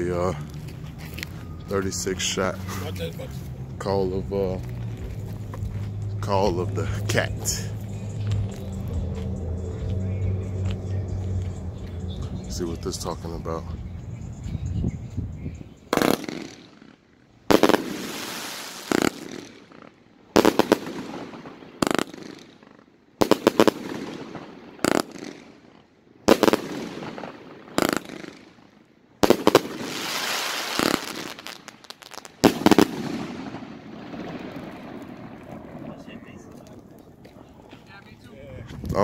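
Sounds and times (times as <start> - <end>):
firework shots exploding: 15.9 - 36.8.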